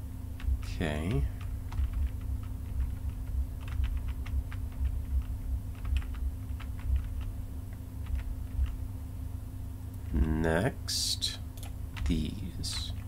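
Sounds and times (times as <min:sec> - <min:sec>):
steady low hum: 0:00.0 - 0:13.0
computer keys and mouse clicking: 0:00.4 - 0:08.8, 0:11.5 - 0:13.0.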